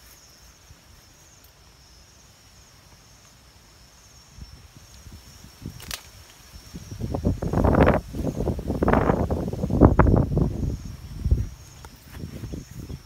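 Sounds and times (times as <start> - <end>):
rustling of movement: 4.8 - 13.0
slingshot snap: 5.7 - 6.4.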